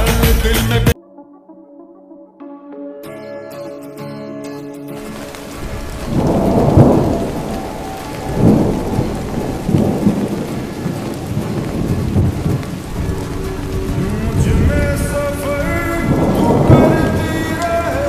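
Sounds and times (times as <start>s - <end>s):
steady rain: 4.9s - 18.0s
rolling thunder: 5.0s - 18.0s.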